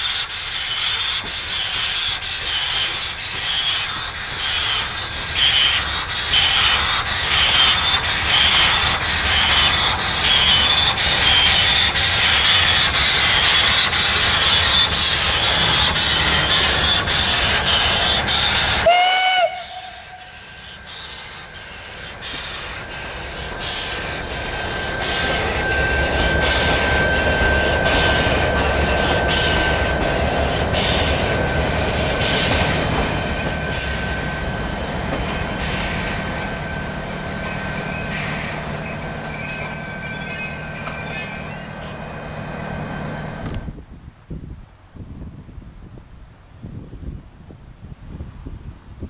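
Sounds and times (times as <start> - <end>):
steam locomotive chuffing: 0.0 - 43.7
wheels squealing: 0.0 - 43.7
steam whistle blast: 18.3 - 21.4.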